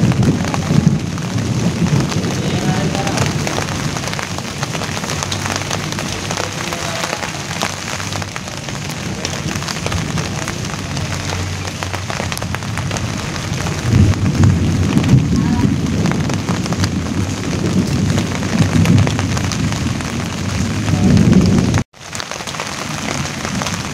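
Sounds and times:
rain pattering on leaves: 0.0 - 23.9.

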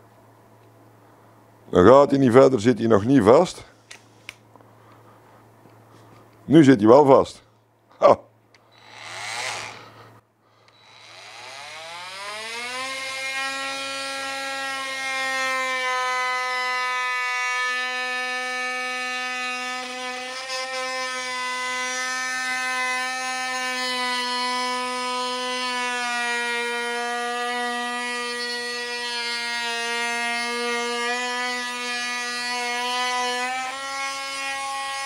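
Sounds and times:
blade cutting into wood: 8.7 - 10.0, 10.7 - 35.0
oscillating multitool whining: 10.7 - 35.0.

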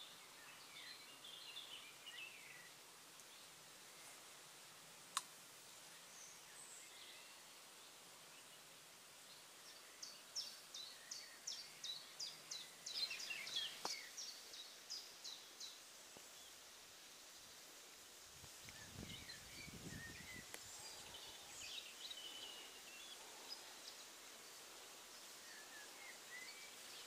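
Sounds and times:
small bird singing: 0.0 - 3.6, 5.9 - 16.6, 18.6 - 27.0
quiet outdoor hiss: 0.0 - 27.0
sharp click: 5.1 - 5.3.

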